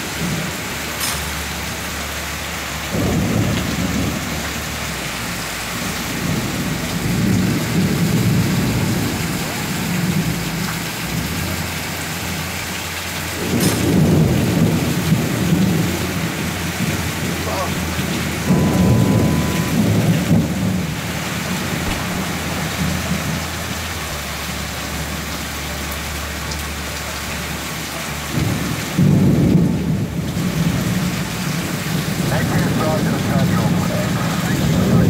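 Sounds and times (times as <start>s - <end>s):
heavy rain: 0.0s - 35.0s
thunder rumbling: 2.9s - 12.4s, 13.3s - 24.2s, 28.3s - 35.0s.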